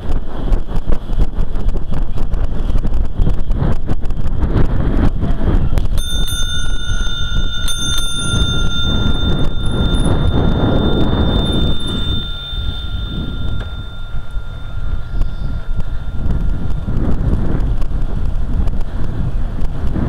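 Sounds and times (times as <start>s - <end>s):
wind rushing on microphone: 0.0s - 20.0s
bicycle bell ringing: 5.8s - 18.1s.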